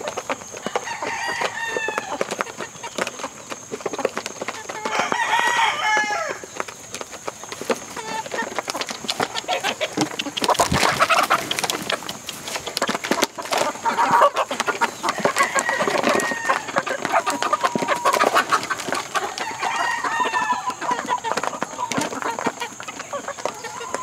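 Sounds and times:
beaks pecking metal feed pan: 0.0 - 24.0
chickens clucking: 0.0 - 24.0
chicken long held calls: 9.2 - 24.0.

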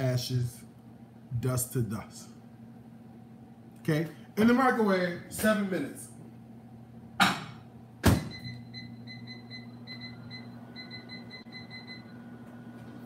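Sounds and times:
microwave oven humming: 0.0 - 13.0
microwave door shutting: 8.0 - 8.6
keypad beeps: 8.3 - 12.2.

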